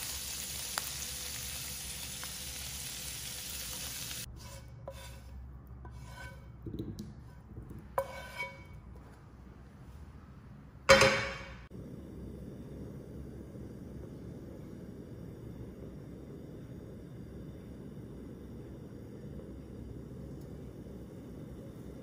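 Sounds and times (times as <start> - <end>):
shrimp sizzling in hot oil: 0.0 - 4.3
spatula scraping a pan: 4.2 - 6.6, 7.2 - 9.2.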